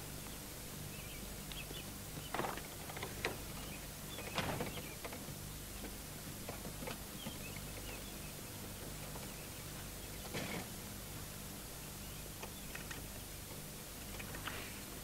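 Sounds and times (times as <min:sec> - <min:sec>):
low steady hum: 0:00.0 - 0:15.0
small birds chirping: 0:00.0 - 0:15.0.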